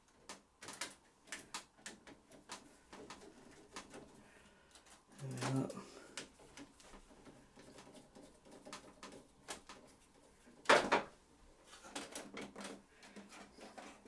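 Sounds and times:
knock and rustle: 6.5 - 11.2.

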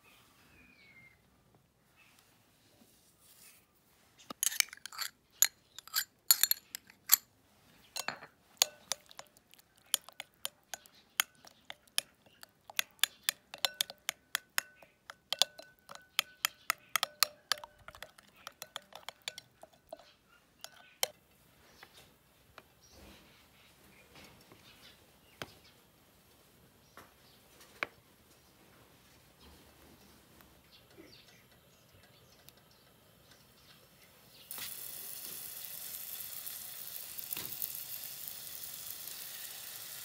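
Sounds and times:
spoon clinking against glass bowl: 4.4 - 7.3, 8.0 - 21.1.

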